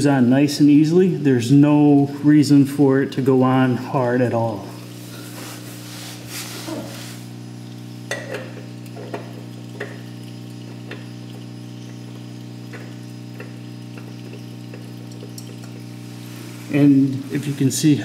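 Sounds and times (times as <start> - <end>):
steady electrical hum: 0.0 - 18.0
oil filter clicks and scrapes: 8.0 - 17.7.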